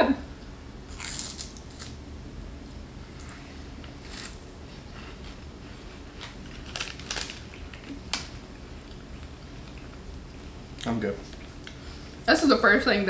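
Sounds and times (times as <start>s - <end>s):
low room hum: 0.0s - 13.0s
cookie crunching: 0.9s - 2.0s, 6.0s - 9.0s.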